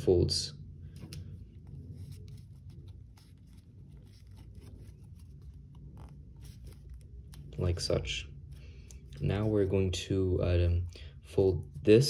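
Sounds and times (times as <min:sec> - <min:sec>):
low background hum: 0:00.0 - 0:12.0
paper rustling and crinkling: 0:00.9 - 0:07.7.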